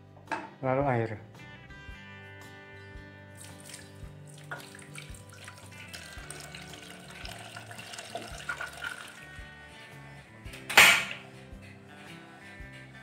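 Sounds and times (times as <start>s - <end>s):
guitar music: 0.0s - 13.0s
water pouring into metal pot: 3.3s - 9.4s.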